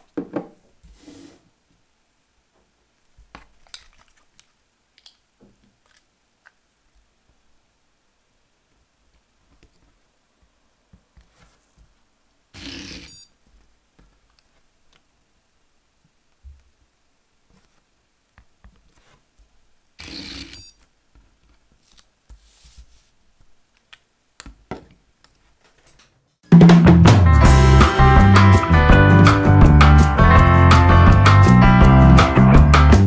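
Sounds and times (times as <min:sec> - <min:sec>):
music: 0:26.5 - 0:33.0.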